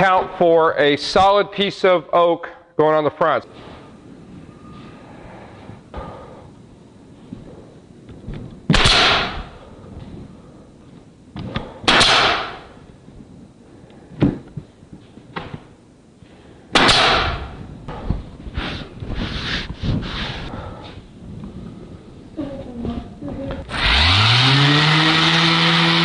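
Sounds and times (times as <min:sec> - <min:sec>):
nail gun firing: 0:08.7 - 0:09.5, 0:11.9 - 0:12.7, 0:16.7 - 0:17.5
air hissing from nail gun: 0:18.6 - 0:20.5.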